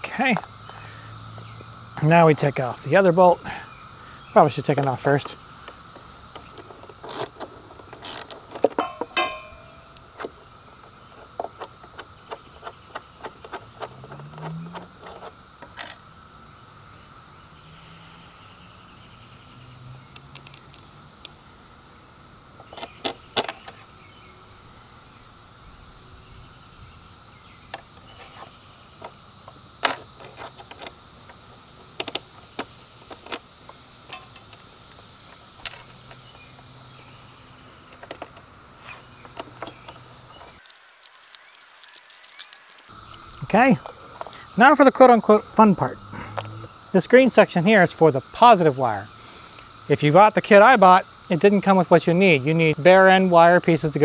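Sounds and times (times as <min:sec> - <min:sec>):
metallic clinks of wrench and bolts: 0:07.1 - 0:10.3, 0:34.1 - 0:34.6.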